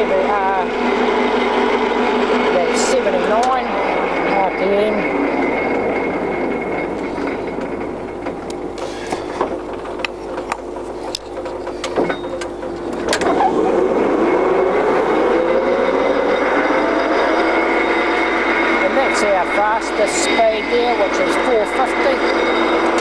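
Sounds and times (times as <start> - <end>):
lathe gearing running: 0.0 - 23.0
spindle whine rising in pitch: 0.0 - 23.0
gear levers clunking: 7.0 - 13.8.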